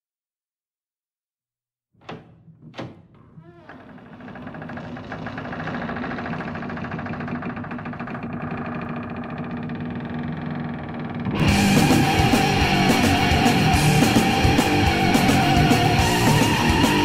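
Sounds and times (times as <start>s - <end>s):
short creak: 2.0s - 11.1s.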